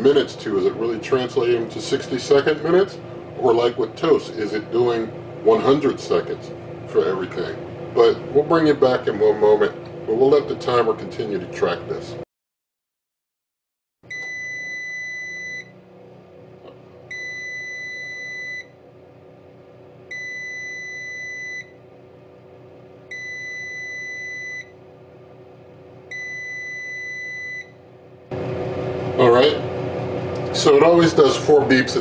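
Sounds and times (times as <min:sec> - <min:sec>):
steady low hum: 0:00.0 - 0:12.2, 0:14.1 - 0:32.0
high-pitched alarm beeps: 0:14.1 - 0:15.7, 0:17.1 - 0:18.7, 0:20.1 - 0:21.7, 0:23.1 - 0:24.7, 0:26.1 - 0:27.7.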